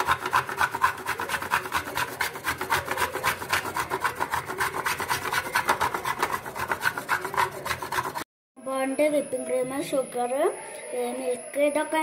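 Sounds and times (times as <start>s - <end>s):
chocolate rasping on metal grater: 0.0s - 8.3s.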